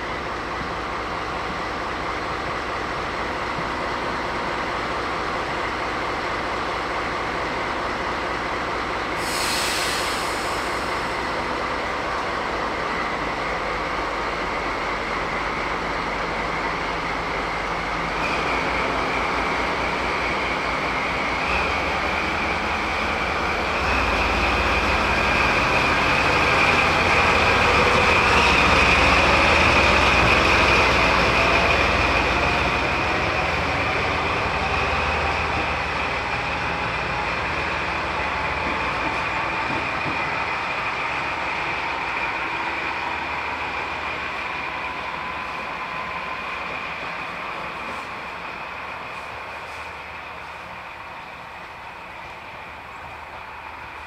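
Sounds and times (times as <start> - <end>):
diesel locomotive running: 0.0 - 54.0
short air hiss: 9.2 - 11.1.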